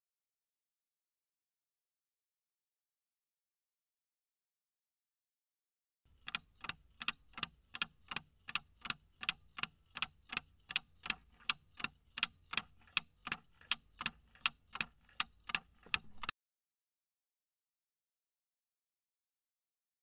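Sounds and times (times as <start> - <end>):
clock ticking: 6.1 - 16.3.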